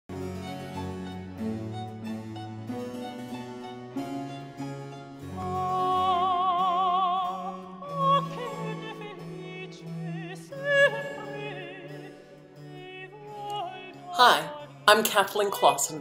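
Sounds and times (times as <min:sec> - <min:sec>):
classical accompaniment: 0:00.1 - 0:16.0
operatic singing with vibrato: 0:05.4 - 0:16.0.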